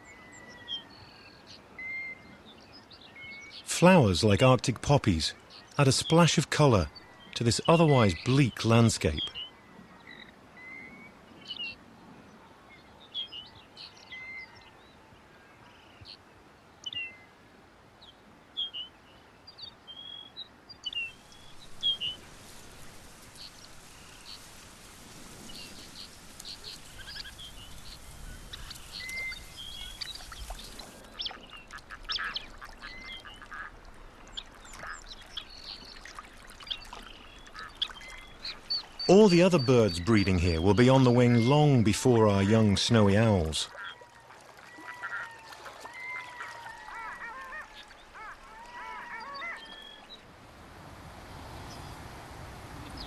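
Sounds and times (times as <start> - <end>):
soft steady hiss: 15.7 - 43.7, 49.8 - 53.0
small birds chirping: 19.5 - 44.1, 52.8 - 53.0.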